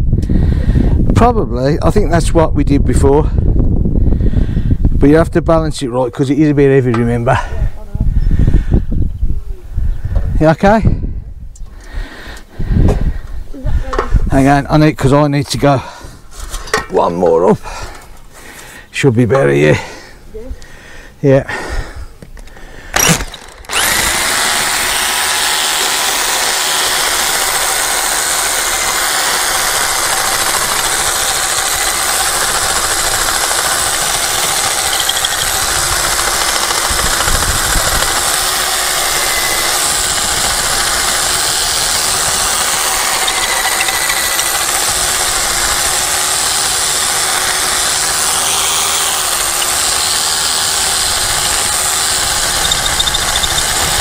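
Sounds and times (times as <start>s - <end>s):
electric drill boring into wall: 22.9s - 54.0s.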